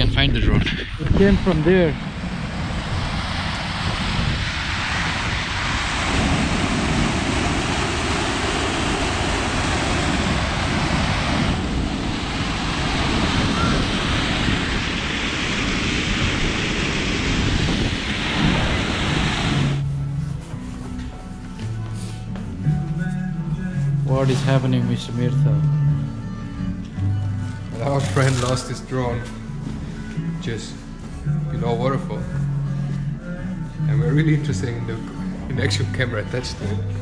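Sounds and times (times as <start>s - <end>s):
wind buffeting microphone: 0.0s - 20.0s
waterfall roaring: 1.0s - 19.8s.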